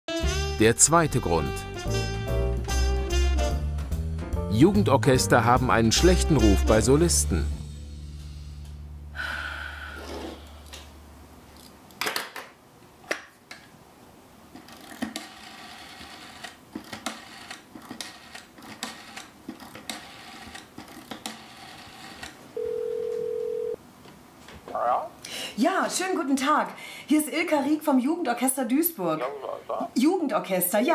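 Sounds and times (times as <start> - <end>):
rotary telephone dial clicking: 14.6 - 22.4
telephone ringing tone: 22.6 - 23.8.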